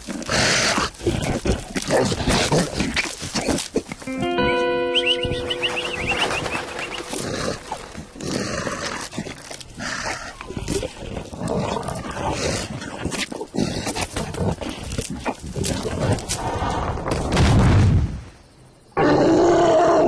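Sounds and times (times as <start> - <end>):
cartoon sound effects: 4.1 - 7.7
bird chirps: 4.8 - 8.1.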